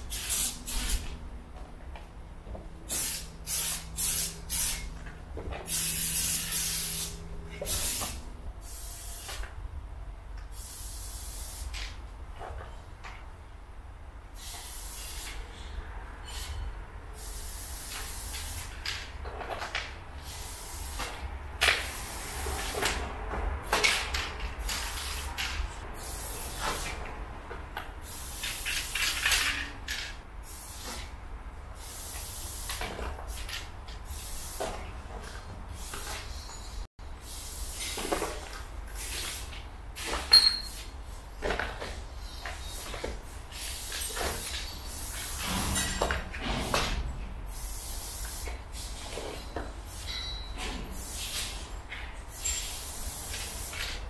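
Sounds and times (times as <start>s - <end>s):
spray paint can hissing: 0.0s - 1.2s, 2.9s - 5.0s, 5.7s - 9.5s, 10.4s - 12.0s, 14.4s - 15.4s, 16.2s - 16.6s, 17.2s - 19.0s, 20.2s - 23.0s, 23.6s - 27.0s, 28.0s - 29.6s, 30.4s - 31.1s, 31.8s - 34.9s, 35.8s - 36.4s, 37.2s - 39.6s, 40.5s - 41.0s, 42.4s - 45.5s, 47.5s - 48.9s, 51.0s - 51.6s, 52.2s - 54.0s.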